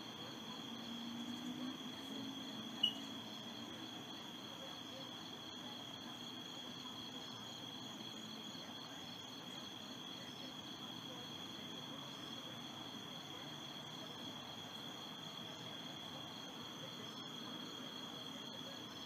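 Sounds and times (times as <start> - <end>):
insects trilling: 0.3 - 5.5.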